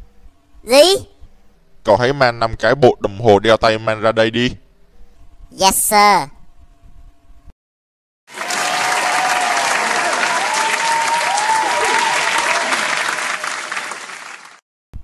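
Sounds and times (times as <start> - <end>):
crowd applause: 8.3 - 14.6
crowd cheering: 8.3 - 14.6.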